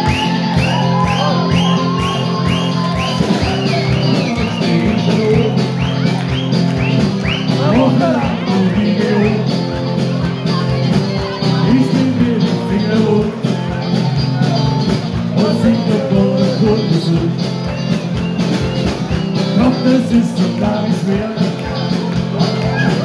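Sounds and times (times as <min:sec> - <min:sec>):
live band playing amplified music: 0:00.0 - 0:23.0.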